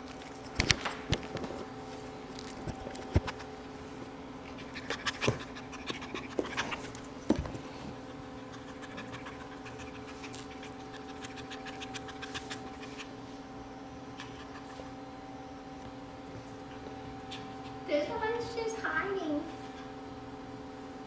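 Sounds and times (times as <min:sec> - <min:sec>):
steady low hum: 0:00.0 - 0:21.0
dog panting: 0:04.4 - 0:07.1, 0:07.9 - 0:13.2, 0:14.1 - 0:15.0, 0:16.5 - 0:18.2.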